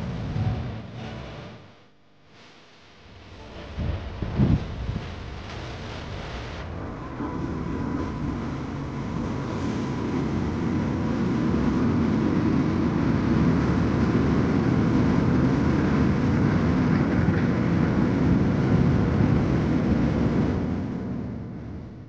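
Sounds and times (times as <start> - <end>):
diesel train rumbling past: 0.0 - 1.5, 6.7 - 14.5.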